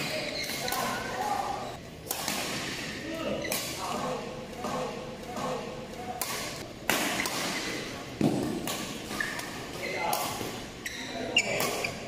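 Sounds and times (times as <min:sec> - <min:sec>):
shoes squeaking on court floor: 0:00.0 - 0:01.8, 0:08.8 - 0:12.0
voices echoing in hall: 0:00.0 - 0:12.0
rackets hitting shuttlecock: 0:02.0 - 0:10.7.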